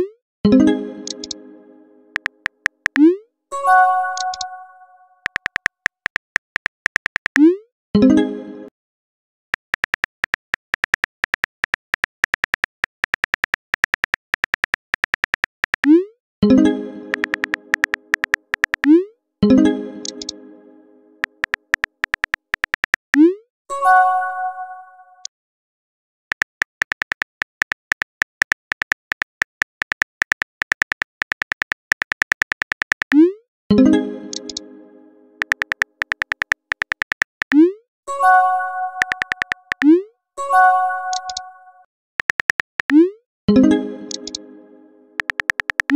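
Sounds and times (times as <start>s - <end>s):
phone keyboard clicks: 1.0s - 1.4s, 2.2s - 3.1s, 4.2s - 4.5s, 5.2s - 7.4s, 9.6s - 15.9s, 17.1s - 19.0s, 20.0s - 20.3s, 21.2s - 23.2s, 26.3s - 33.2s, 35.4s - 37.6s, 39.0s - 39.9s, 42.2s - 43.0s, 44.1s - 44.4s, 45.2s - 45.9s.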